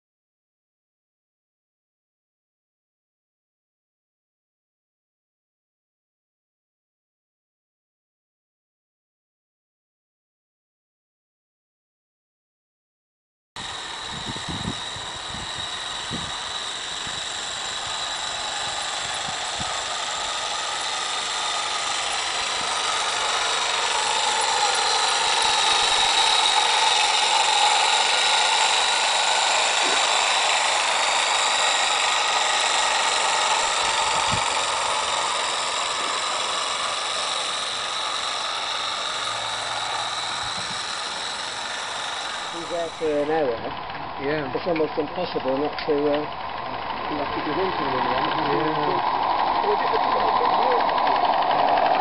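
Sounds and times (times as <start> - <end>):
steam locomotive hissing: 13.6 - 52.0.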